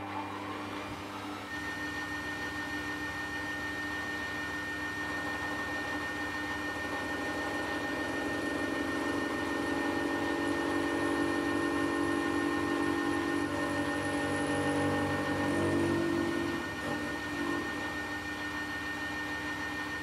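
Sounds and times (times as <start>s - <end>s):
metal lathe whine and hum: 0.0s - 20.0s
higher tone of cutting tool: 5.6s - 18.3s.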